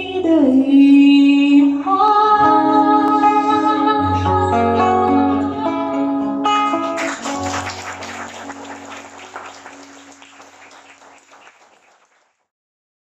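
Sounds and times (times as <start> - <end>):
audience applause: 6.7 - 12.5.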